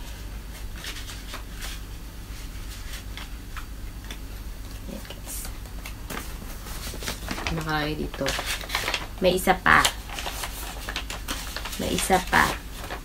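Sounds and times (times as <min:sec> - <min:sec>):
paper rustling and flicking: 0:00.0 - 0:04.2, 0:04.9 - 0:13.0
steady low hum: 0:00.0 - 0:13.0.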